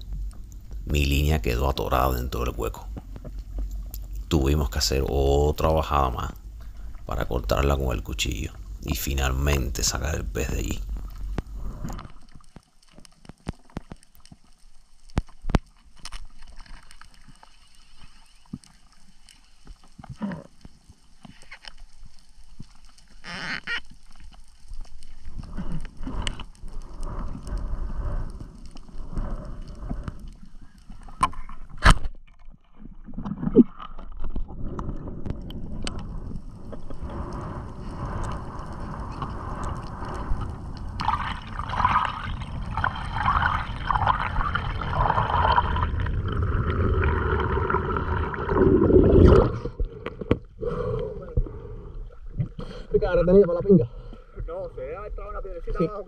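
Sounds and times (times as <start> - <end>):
muffled underwater rush: 0.0 - 12.4, 25.0 - 31.2, 34.3 - 55.6
water splash: 40.4 - 49.8.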